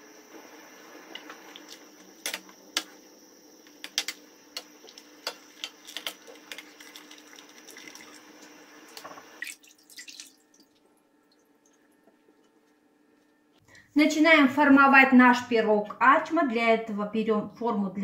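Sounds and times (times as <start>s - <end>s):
steady background hiss: 0.0s - 9.6s
water dripping and sloshing: 4.9s - 12.6s
soft splashes: 8.9s - 12.4s.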